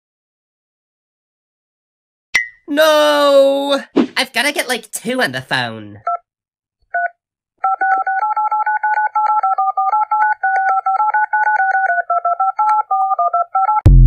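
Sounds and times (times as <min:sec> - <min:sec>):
phone keypad dialing beeps: 0:06.9 - 0:13.9.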